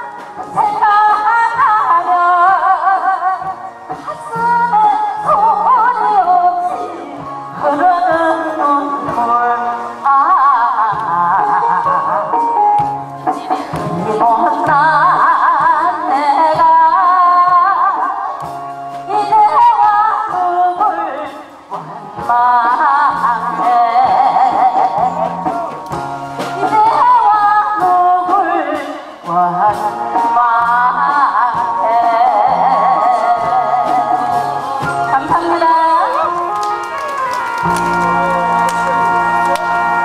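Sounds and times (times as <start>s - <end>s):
woman singing with vibrato: 0.0s - 12.6s, 13.3s - 18.4s, 19.0s - 25.8s, 26.6s - 37.7s
amplified backing band: 0.0s - 40.0s.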